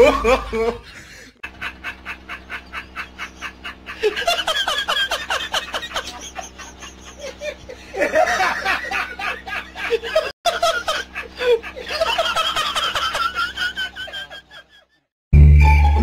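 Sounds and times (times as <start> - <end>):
man laughing loudly: 0.0 - 15.0.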